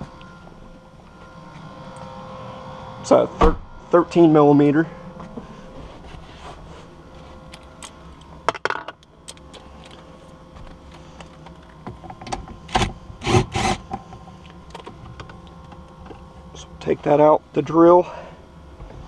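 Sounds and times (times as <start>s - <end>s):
cordless drill running: 12.7s - 13.8s.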